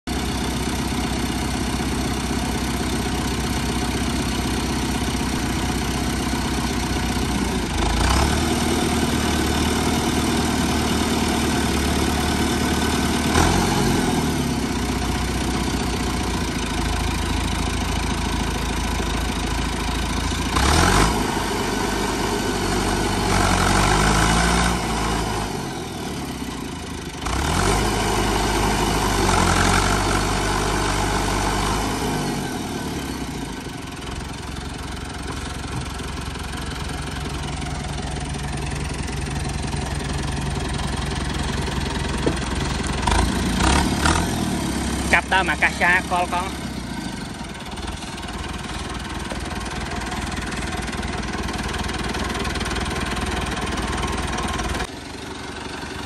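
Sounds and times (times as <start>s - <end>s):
tractor engine straining: 0.0s - 56.0s.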